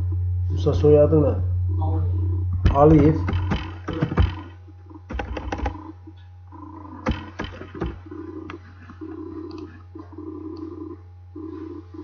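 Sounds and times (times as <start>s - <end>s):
low hum: 0.0s - 12.0s
steady mains hum: 0.0s - 12.0s
keyboard keys clicking: 5.1s - 5.8s, 7.0s - 8.0s.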